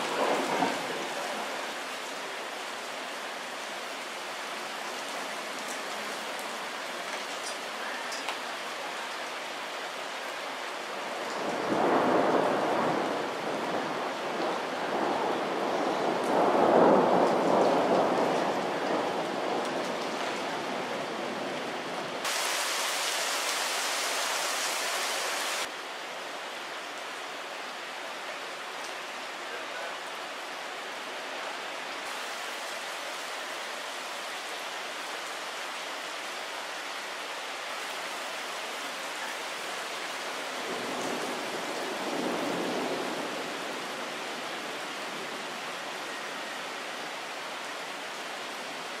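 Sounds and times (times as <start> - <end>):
thunder rumbling: 0.0 - 1.6, 11.4 - 25.7
steady rain falling: 0.0 - 49.0
loud hiss: 22.2 - 25.7.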